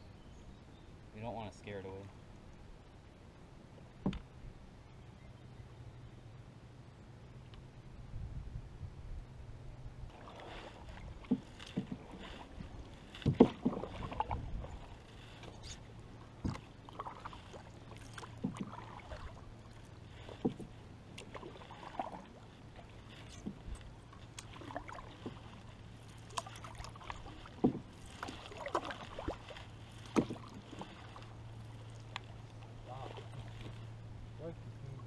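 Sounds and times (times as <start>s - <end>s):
paddles splashing in water: 10.1s - 35.0s.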